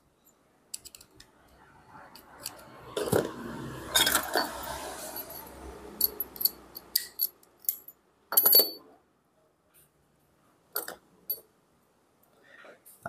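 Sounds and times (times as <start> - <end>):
metal parts clicking and clinking: 0.2 - 1.3, 2.1 - 3.3, 3.9 - 8.9, 10.8 - 11.5.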